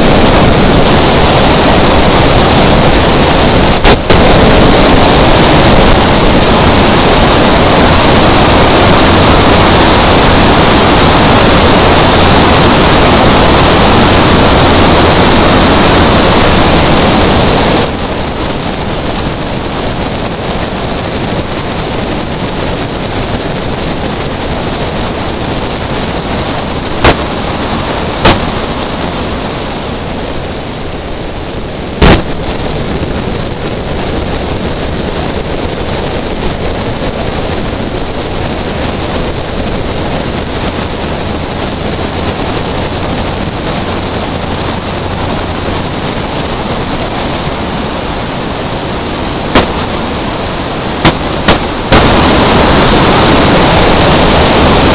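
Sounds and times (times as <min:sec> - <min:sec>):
car running noise: 0:00.0 - 0:54.9
wind rushing over microphone: 0:00.0 - 0:54.9
sharp bangs: 0:32.0 - 0:32.6, 0:49.5 - 0:50.2.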